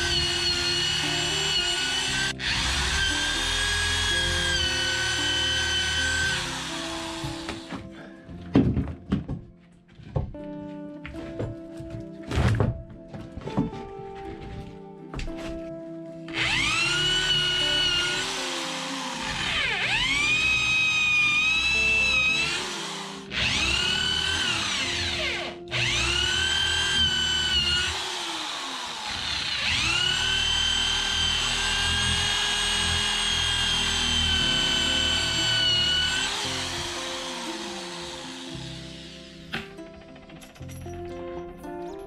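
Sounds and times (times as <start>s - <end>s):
electric drill whine: 0.0s - 7.8s, 16.3s - 40.1s.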